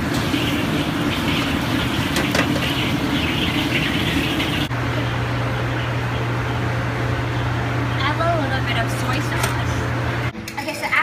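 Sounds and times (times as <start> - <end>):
roar of gas burners and exhaust: 0.0 - 10.4
steady low hum: 2.7 - 10.9.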